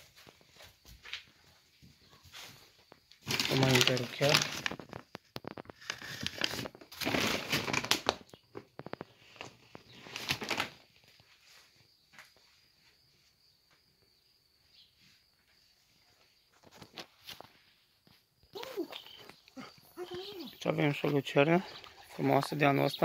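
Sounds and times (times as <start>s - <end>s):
paper sack crinkling: 3.2s - 11.2s.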